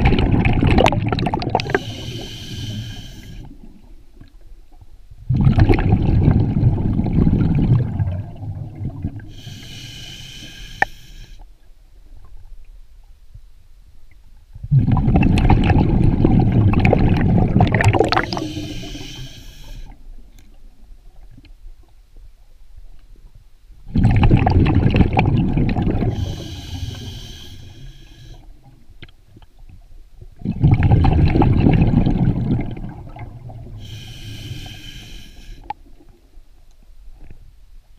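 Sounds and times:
exhaled bubbles rushing: 0.0 - 2.0, 5.3 - 9.3, 14.7 - 19.0, 23.9 - 26.8, 30.4 - 33.8
regulator inhalation hiss: 1.7 - 3.5, 9.3 - 11.4, 18.2 - 20.0, 26.1 - 28.5, 33.8 - 35.7.

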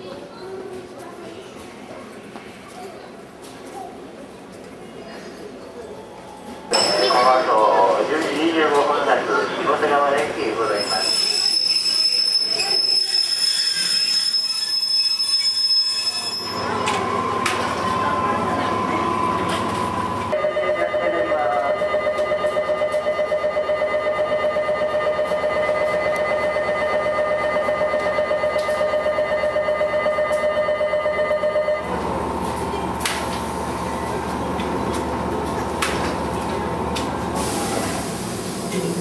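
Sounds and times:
electric departure bell ringing: 6.7 - 7.9, 14.0 - 17.4
pneumatic doors air hiss: 37.4 - 38.9.

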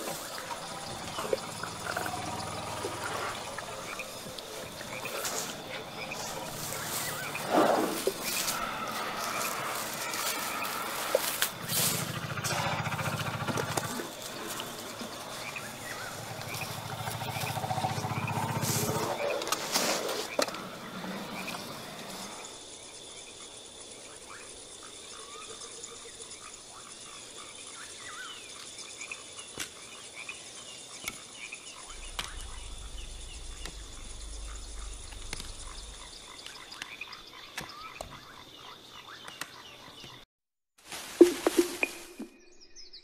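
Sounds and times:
high-pitched insect drone: 0.0 - 19.2, 31.8 - 37.2
low rumble: 31.9 - 36.6.

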